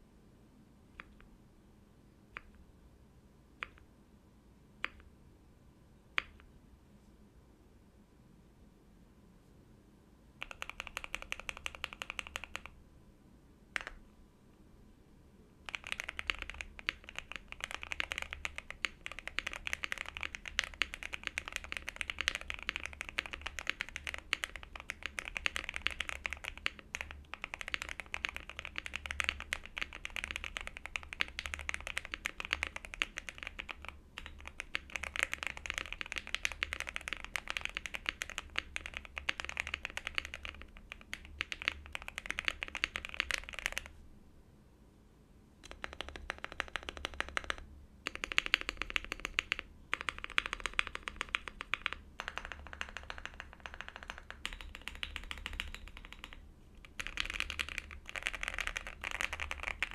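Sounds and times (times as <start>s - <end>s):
fast typing on mechanical keyboard: 10.4s - 12.8s, 15.7s - 43.9s, 45.6s - 59.9s.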